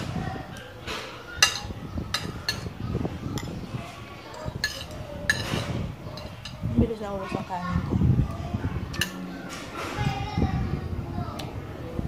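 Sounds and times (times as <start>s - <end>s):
cutlery clinking on plate: 0.9s - 2.8s, 4.3s - 6.7s, 8.9s - 9.8s.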